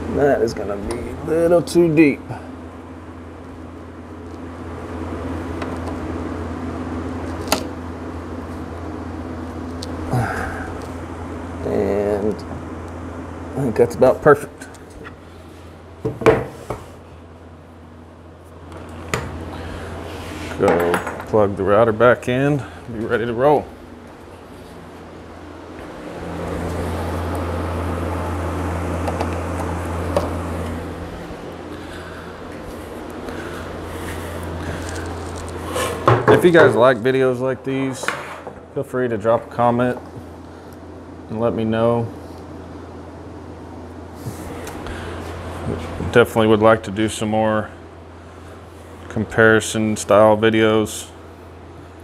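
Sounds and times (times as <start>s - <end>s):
fan motor humming: 0.0s - 52.0s
electric motor humming: 22.4s - 37.9s.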